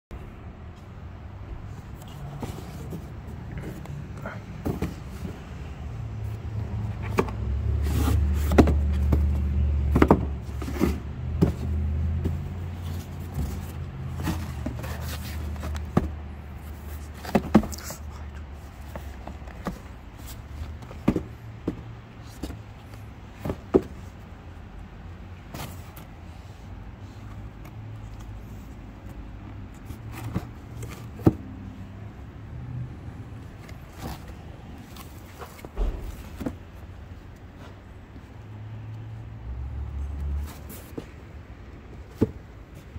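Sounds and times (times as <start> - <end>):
cardboard boxes tapping and knocking: 2.4 - 5.6, 6.8 - 24.3, 29.9 - 31.7, 33.6 - 36.8, 42.0 - 42.9.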